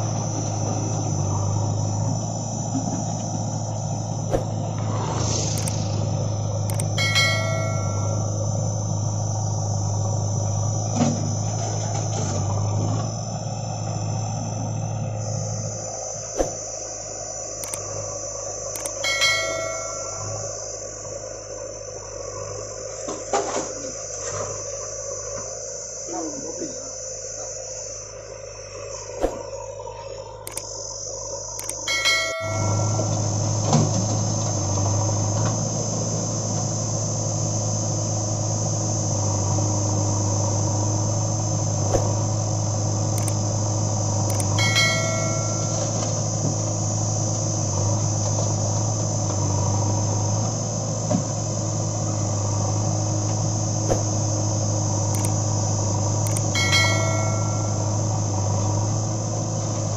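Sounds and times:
diesel engine idling: 0:00.0 - 0:59.9
high insect drone: 0:00.0 - 0:59.9
short electronic chime: 0:06.7 - 0:08.4, 0:19.0 - 0:20.5, 0:31.9 - 0:33.2, 0:44.4 - 0:46.0, 0:56.5 - 0:58.0.

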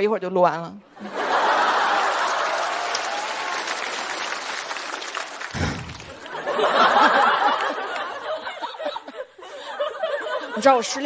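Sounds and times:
audience applauding: 0:01.1 - 0:08.5.

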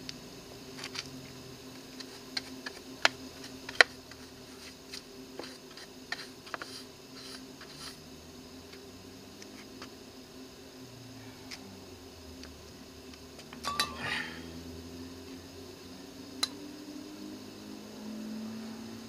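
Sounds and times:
faint steady hum: 0:00.0 - 0:19.0
brush sweeping debris on metal: 0:03.3 - 0:08.1, 0:13.7 - 0:14.4.

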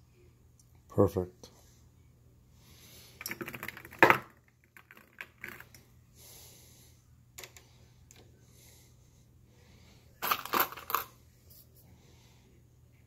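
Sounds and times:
metal cartridges clicking: 0:10.2 - 0:11.1.

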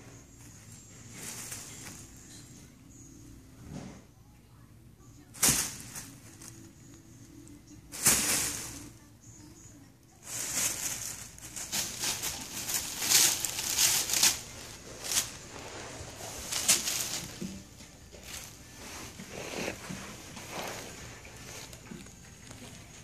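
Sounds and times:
plastic bag crinkling and rustling: 0:10.2 - 0:23.0.

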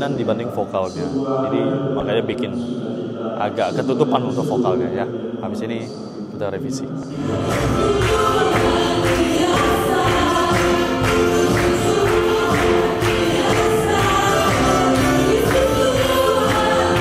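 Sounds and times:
live worship band and singers: 0:07.0 - 0:17.0.

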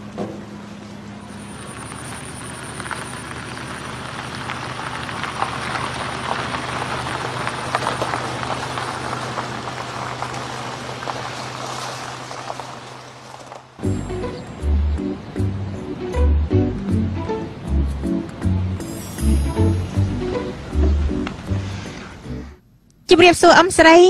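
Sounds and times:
low engine hum: 0:00.0 - 0:22.7
tyres crunching on gravel: 0:01.5 - 0:14.3.

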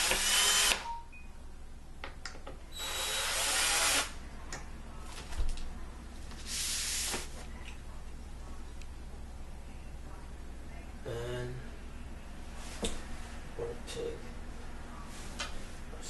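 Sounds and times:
cordless drill running: 0:00.0 - 0:00.8, 0:02.7 - 0:04.1.

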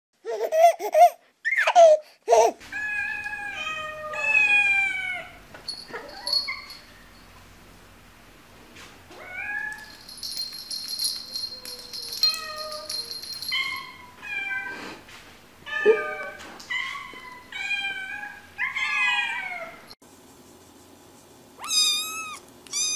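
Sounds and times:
cats meowing: 0:02.7 - 0:05.4, 0:15.6 - 0:19.9, 0:21.6 - 0:22.9.

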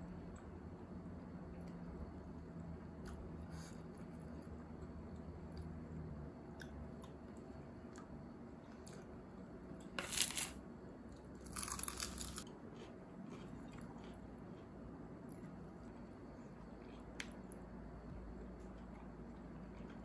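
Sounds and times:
crunchy bites: 0:09.8 - 0:10.6, 0:11.4 - 0:14.2.

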